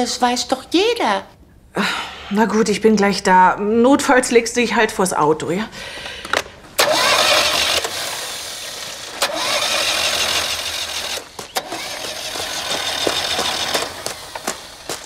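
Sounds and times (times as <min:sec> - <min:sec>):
car engine cranking on starter: 0:06.8 - 0:15.0.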